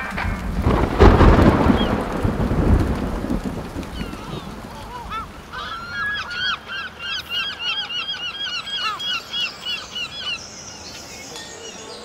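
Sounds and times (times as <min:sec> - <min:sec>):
geese honking: 0:00.0 - 0:10.6.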